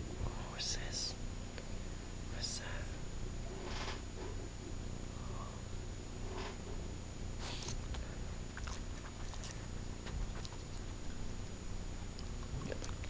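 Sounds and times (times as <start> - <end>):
dog chewing: 7.4 - 11.4, 12.0 - 13.0.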